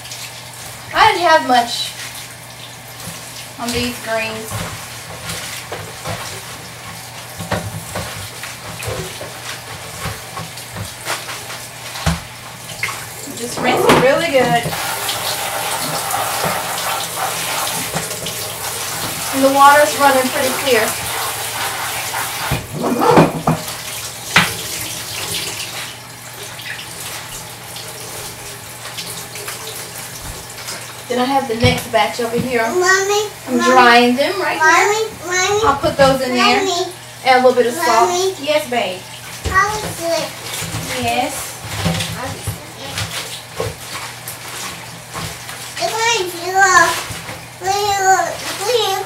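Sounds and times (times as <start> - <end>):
tap water running and splashing: 0.0 - 49.0
colander knocking: 13.3 - 21.2, 22.1 - 24.6.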